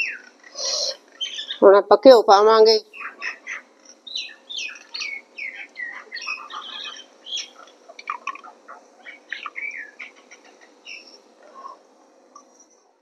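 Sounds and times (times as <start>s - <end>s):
birds chirping: 0.0s - 13.0s.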